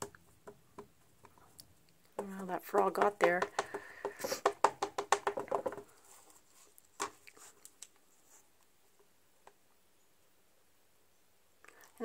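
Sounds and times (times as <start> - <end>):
knock: 3.2 - 5.8.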